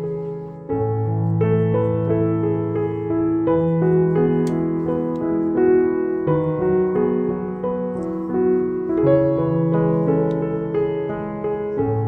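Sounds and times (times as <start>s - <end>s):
background piano music: 0.0s - 12.0s.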